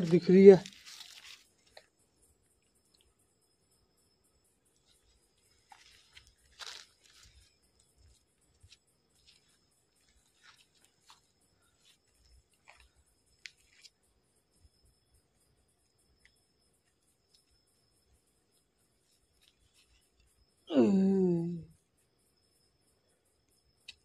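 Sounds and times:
cloth rustling and crunching: 0.6 - 1.6, 5.5 - 8.1
footsteps on sand: 5.7 - 7.3.

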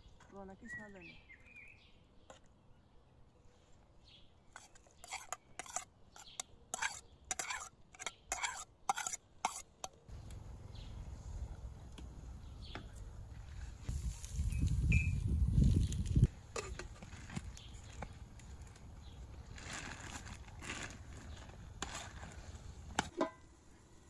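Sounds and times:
spoon scraping and clinking plate: 6.8 - 9.6
low rumble: 10.1 - 16.3.

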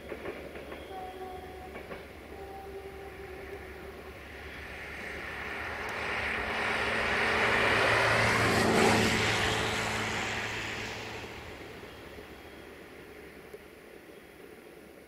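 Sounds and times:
vehicle passing by: 3.4 - 12.8.

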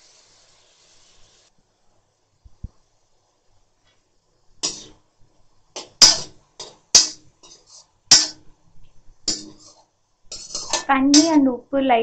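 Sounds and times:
metal spoon scraping a wok: 4.6 - 5.0, 5.8 - 8.5, 9.2 - 11.3.

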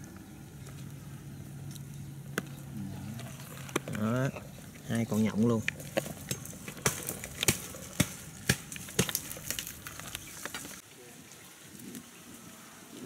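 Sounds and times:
rustling leaves: 0.0 - 13.0
palm leaf sheaths cracking: 1.6 - 10.8.

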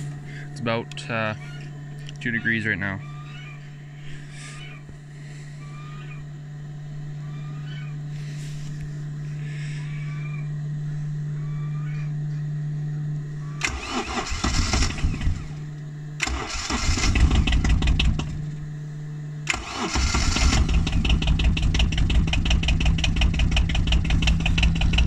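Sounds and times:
diesel engine idling: 0.0 - 25.0
steady hum: 0.0 - 25.0
starter cranking: 13.6 - 15.5, 16.2 - 18.4, 19.5 - 25.0.

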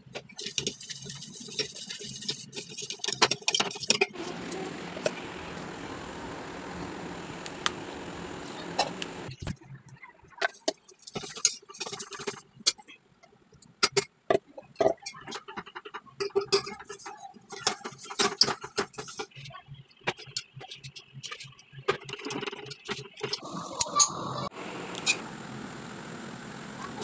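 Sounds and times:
ladle scraping and clinking in pot: 0.3 - 4.2, 10.4 - 12.8.

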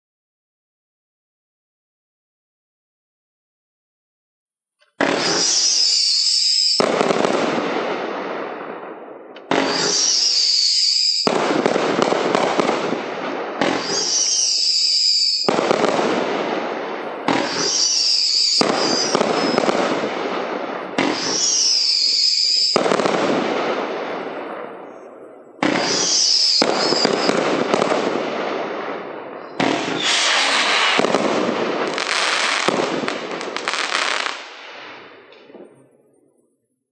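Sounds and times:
firework bursts: 4.9 - 36.3
screaming firework whistles: 5.0 - 7.2, 9.5 - 11.4, 13.6 - 16.0, 17.2 - 19.9, 21.0 - 23.2, 25.6 - 27.9, 29.4 - 31.2, 31.9 - 32.7, 33.5 - 34.4.

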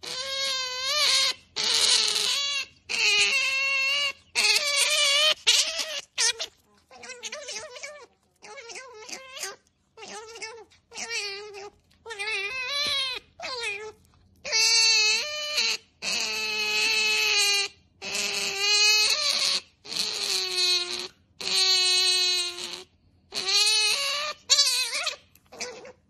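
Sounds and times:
young animal whining: 0.0 - 26.0.

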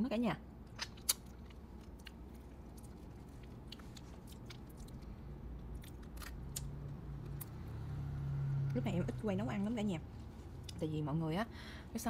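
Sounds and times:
low steady hum: 0.0 - 12.0
crab shell crunching: 0.7 - 6.7
person chewing and sucking: 0.7 - 7.5.

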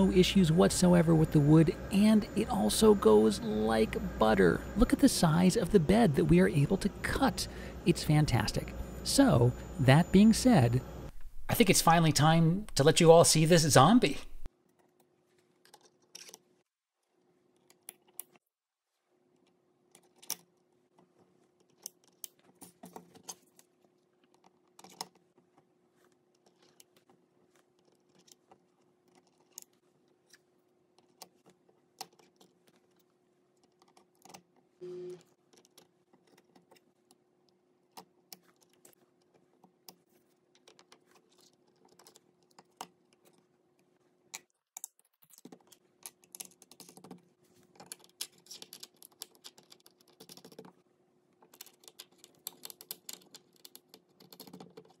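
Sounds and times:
steady low hum: 0.0 - 14.5
short low tone: 34.8 - 35.2
small clicks and taps: 35.4 - 50.8.

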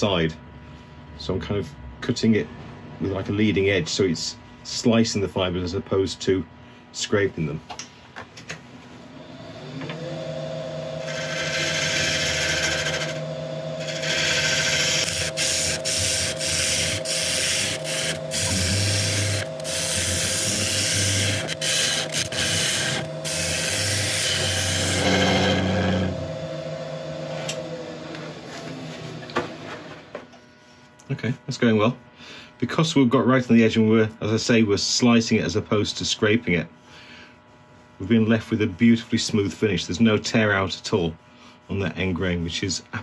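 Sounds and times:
lathe motor whine: 8.7 - 30.2
gouge cutting wood hissing: 9.9 - 29.1.

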